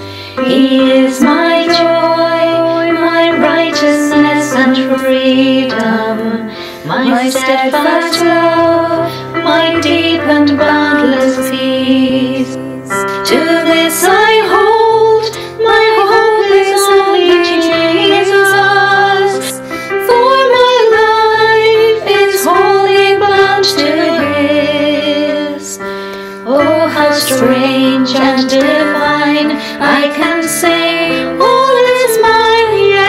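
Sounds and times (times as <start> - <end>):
woman singing: 0.4 - 25.8, 26.5 - 33.0.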